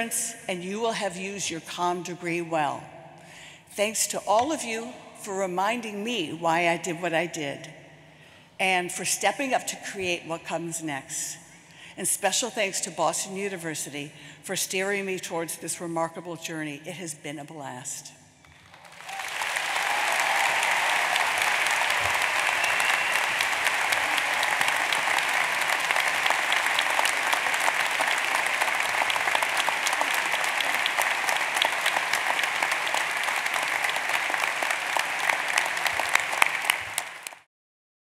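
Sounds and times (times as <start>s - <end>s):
audience applauding: 18.4s - 37.5s.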